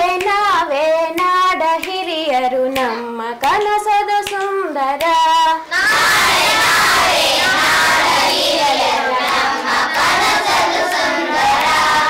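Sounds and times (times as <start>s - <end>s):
teacher singing: 0.0s - 12.0s
children singing in unison: 5.6s - 12.0s.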